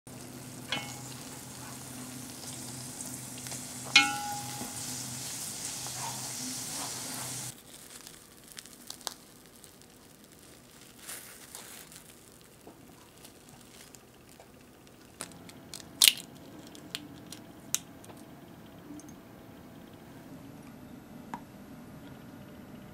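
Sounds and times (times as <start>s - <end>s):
doughnut sizzling in hot oil: 0.1s - 15.3s.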